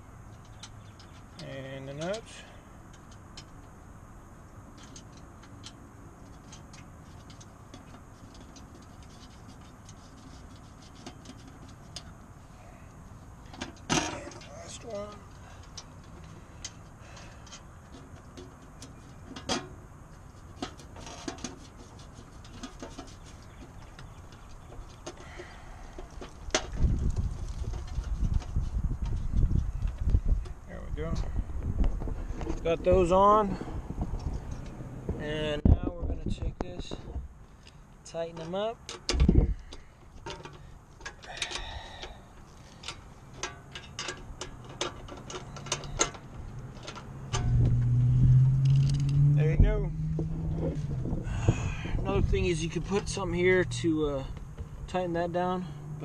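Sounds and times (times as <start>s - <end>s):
steady low rumble: 25.2s - 38.2s, 47.2s - 56.0s
metallic clicks of nuts on bolts: 38.4s - 47.5s.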